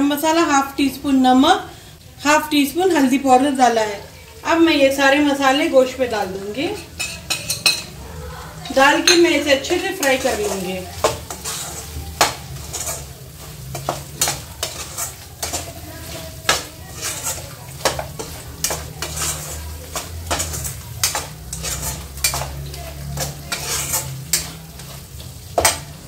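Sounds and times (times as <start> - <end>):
meat and spices sizzling in oil: 0.0 - 26.0
metal spoon scraping a pan: 6.2 - 26.0.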